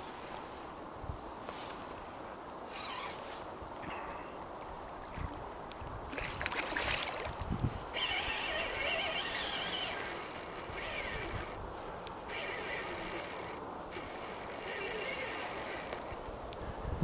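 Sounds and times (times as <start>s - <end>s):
fishing reel whirring: 8.0s - 11.6s, 12.3s - 16.2s.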